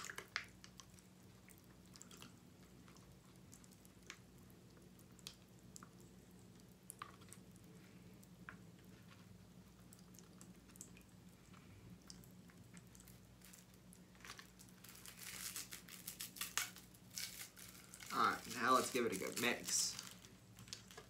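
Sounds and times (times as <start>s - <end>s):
low steady hum: 0.0s - 21.0s
straw wrapper crinkling and tearing: 12.6s - 21.0s.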